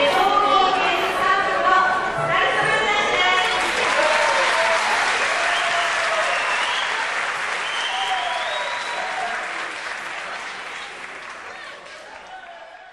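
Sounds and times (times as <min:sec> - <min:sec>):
crowd applauding: 0:03.4 - 0:12.9.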